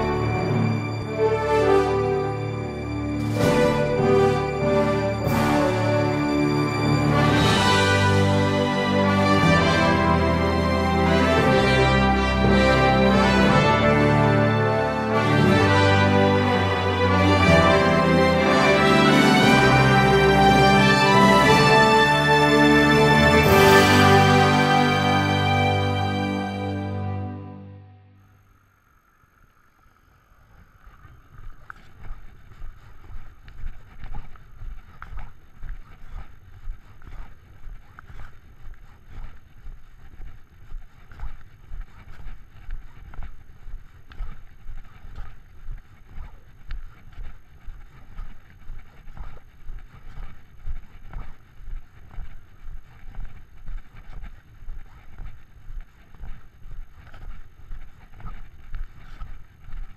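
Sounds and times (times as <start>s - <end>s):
footsteps on cobblestones: 2.9s - 26.4s, 30.6s - 59.9s.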